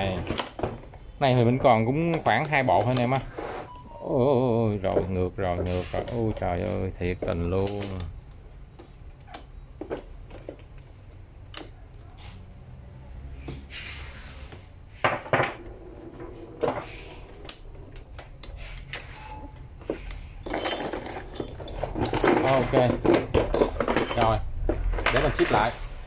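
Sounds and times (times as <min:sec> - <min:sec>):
metal sockets clinking in a case: 0:20.0 - 0:25.5.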